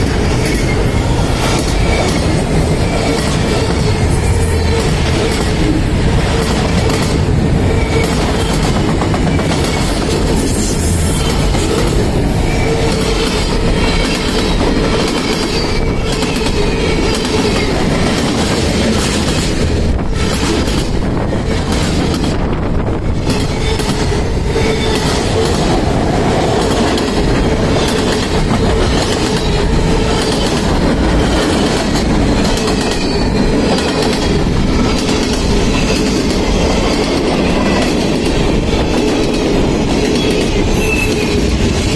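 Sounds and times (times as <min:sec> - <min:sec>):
railroad wheels clattering and banging: 0:00.0 - 0:41.9
steady squeal-like tone: 0:40.2 - 0:41.5.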